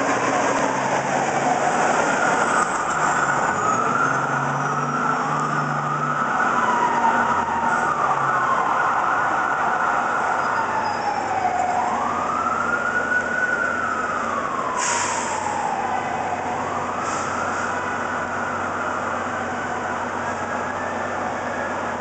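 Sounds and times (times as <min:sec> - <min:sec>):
heavy city traffic: 0:00.0 - 0:22.0
mechanical siren wailing: 0:00.9 - 0:14.8.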